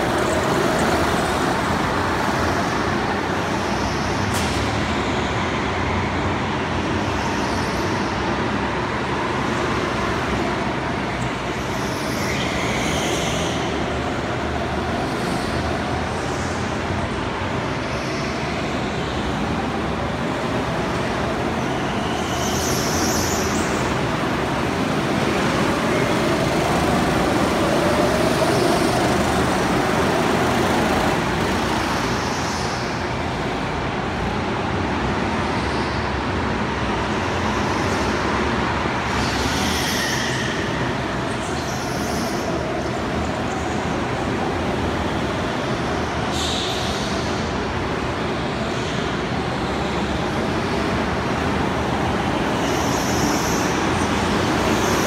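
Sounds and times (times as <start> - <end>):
go-kart motors running: 0.0 - 34.4.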